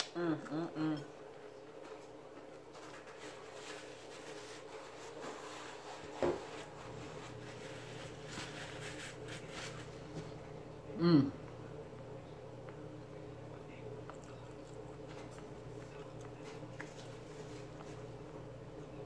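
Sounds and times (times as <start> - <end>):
paper towel rustling: 2.7 - 10.4.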